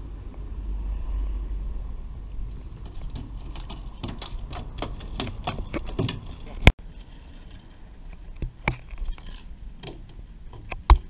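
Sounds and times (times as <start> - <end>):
sharp taps and knocks: 2.8 - 6.8.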